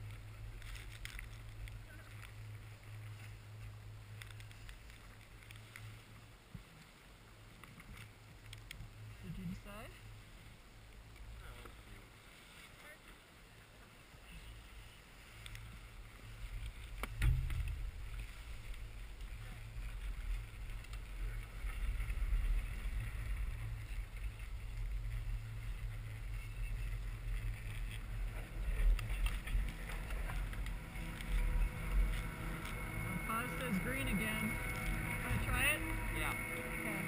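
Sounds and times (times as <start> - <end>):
chairlift rumble: 0.0 - 7.5, 8.1 - 37.0.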